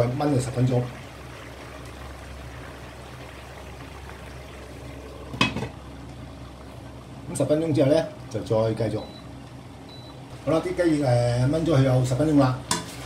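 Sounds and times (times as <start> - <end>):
liquid bubbling in a wok: 0.0 - 8.4.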